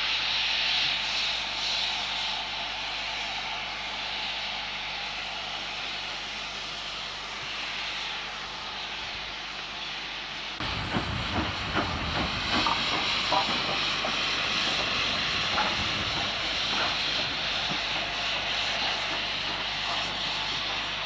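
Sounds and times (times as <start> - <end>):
steam hissing: 0.0 - 21.0
low irregular rumble with knocks: 10.6 - 18.2.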